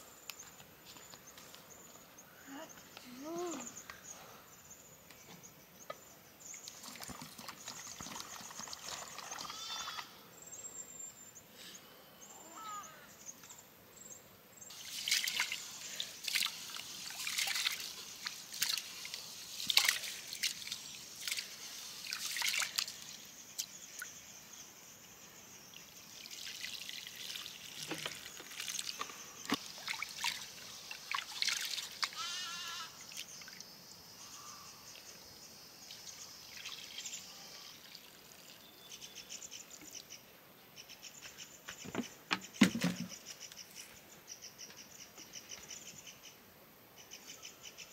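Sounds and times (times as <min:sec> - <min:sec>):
water trickling and splashing: 0:06.5 - 0:10.1, 0:14.7 - 0:24.2, 0:25.8 - 0:32.4, 0:35.8 - 0:38.7.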